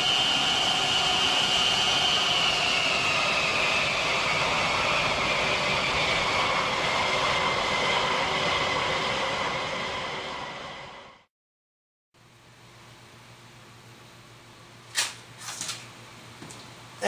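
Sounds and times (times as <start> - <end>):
jet engine roar with high whine: 0.0 - 11.3.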